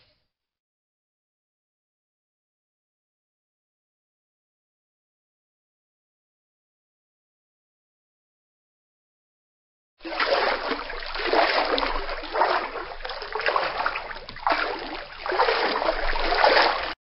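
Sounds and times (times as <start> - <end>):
water sloshing and splashing: 10.0 - 17.0.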